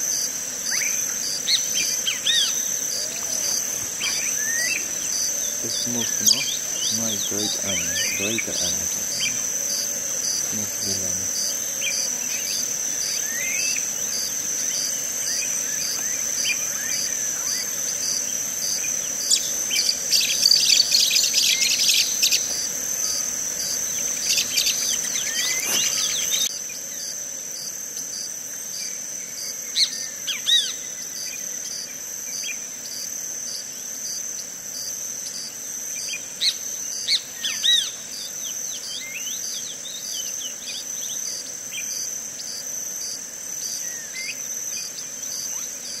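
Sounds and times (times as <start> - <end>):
insect chorus trilling: 0.0 - 46.0
bird calls: 0.6 - 26.5.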